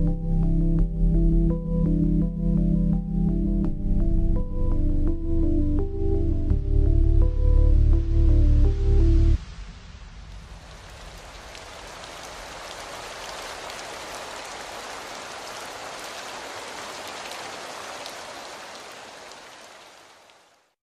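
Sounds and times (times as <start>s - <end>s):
steady rain falling: 7.4s - 20.8s.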